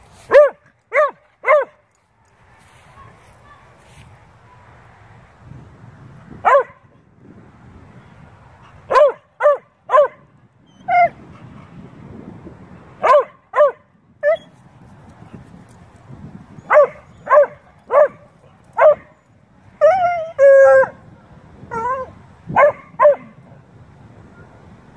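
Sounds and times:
dogs barking: 0.3s - 1.8s, 6.5s - 6.8s, 8.8s - 10.2s, 13.0s - 14.4s, 16.7s - 19.2s, 21.8s - 23.4s.

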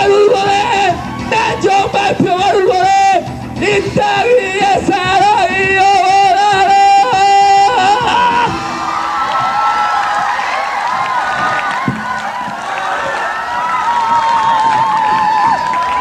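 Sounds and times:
man singing into microphone: 0.0s - 8.8s
pop backing track: 0.0s - 16.0s.

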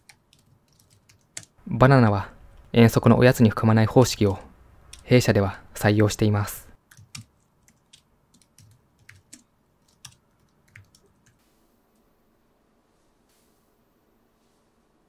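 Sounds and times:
faint keyboard keystrokes: 6.9s - 11.4s.

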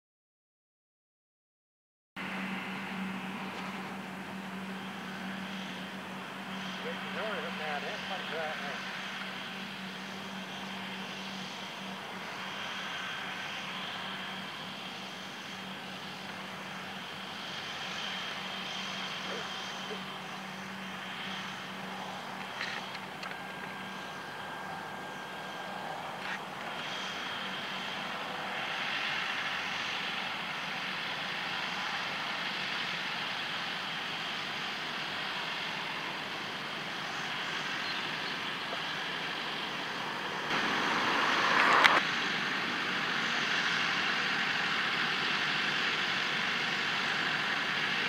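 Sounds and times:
harvester machinery working: 2.2s - 48.0s
tractors running under load: 2.2s - 48.0s
loud rushing noise: 39.9s - 43.2s.

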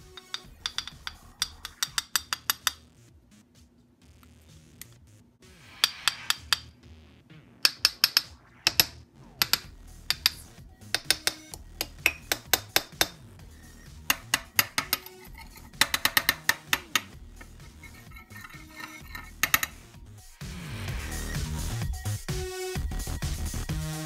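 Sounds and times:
knife tapping on hard caramel: 0.1s - 2.8s, 11.0s - 13.2s, 14.1s - 15.1s, 15.7s - 17.2s.

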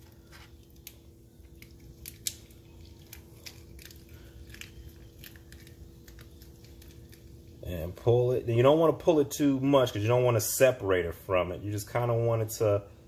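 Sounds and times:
lobster shell crackling and cracking: 0.0s - 7.6s
faint steady hum: 0.0s - 13.0s.

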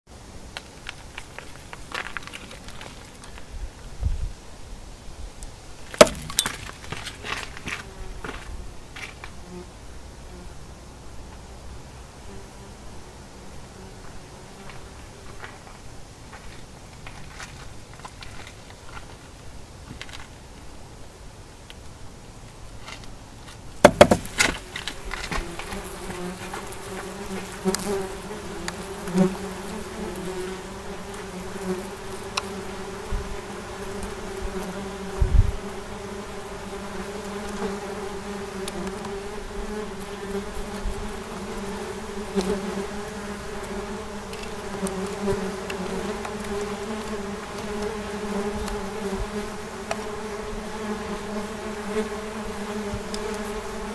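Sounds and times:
sharp knocks: 6.0s - 6.7s, 23.8s - 24.6s
wasps buzzing: 23.9s - 53.9s.

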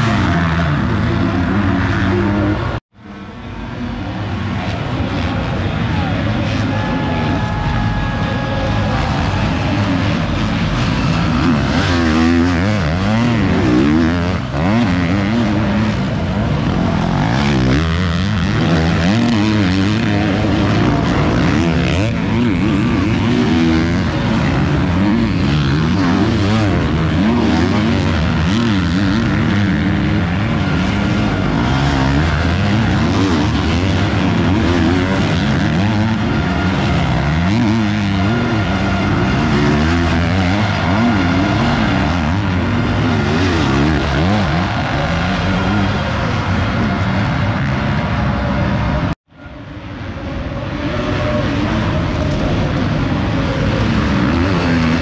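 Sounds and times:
motocross bike engines revving: 0.0s - 55.0s.

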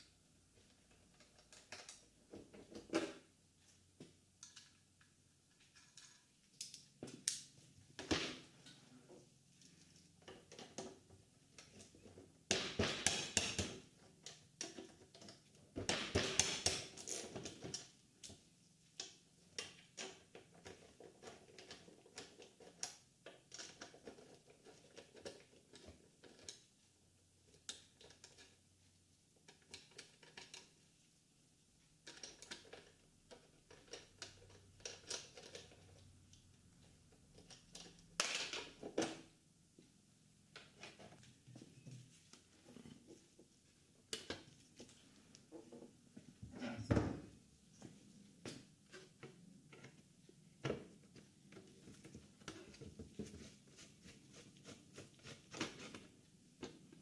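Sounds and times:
rubbing on plastic: 51.7s - 56.2s.

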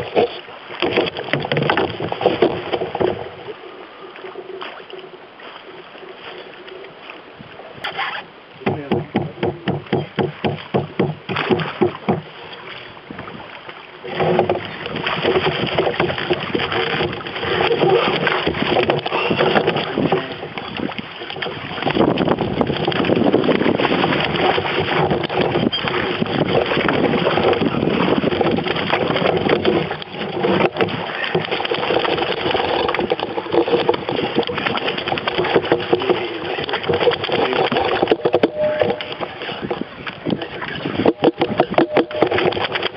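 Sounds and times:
knocks against canoe: 0.0s - 3.3s, 7.8s - 12.3s, 14.0s - 42.9s
water rushing and splashing: 0.0s - 42.9s.

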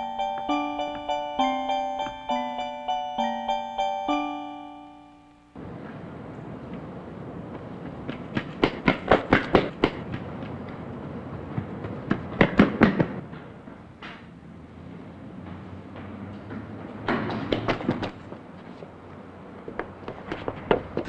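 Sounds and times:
running footsteps: 0.0s - 3.0s, 5.8s - 14.3s, 15.4s - 21.0s
background hiss: 0.0s - 16.0s.

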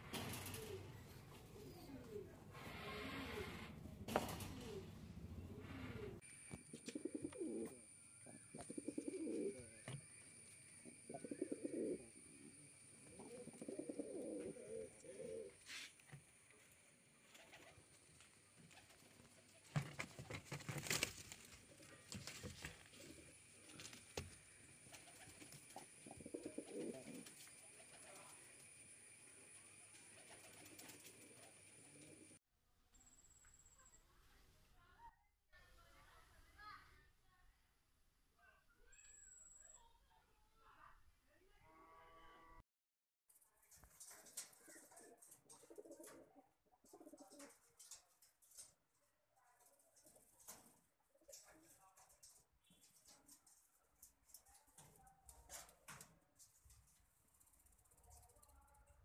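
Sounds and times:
pigeon cooing: 4.3s - 10.0s, 10.8s - 15.6s, 24.9s - 28.4s, 44.7s - 47.6s.

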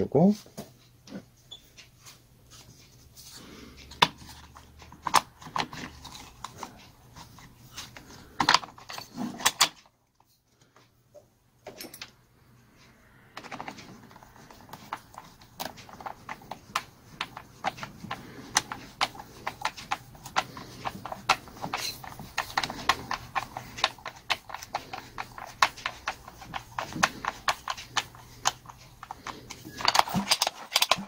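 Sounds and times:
chainsaw parts clicking and knocking: 13.4s - 31.0s.

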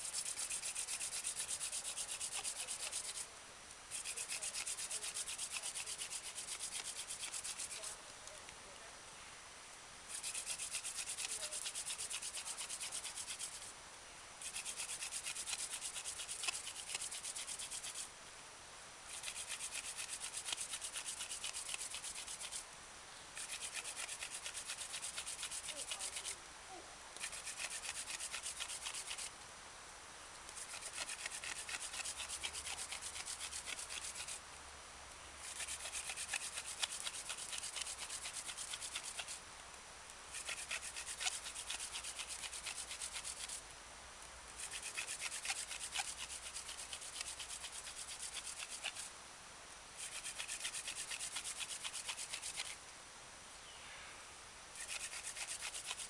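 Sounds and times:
wooden spindle rubbing in fireboard: 0.0s - 3.2s, 3.9s - 8.4s, 10.1s - 13.7s, 14.4s - 18.1s, 19.1s - 22.6s, 23.4s - 26.4s, 27.2s - 29.3s, 30.5s - 34.4s, 35.4s - 39.4s, 40.3s - 43.6s, 44.6s - 49.1s, 50.0s - 52.8s, 54.8s - 56.0s.

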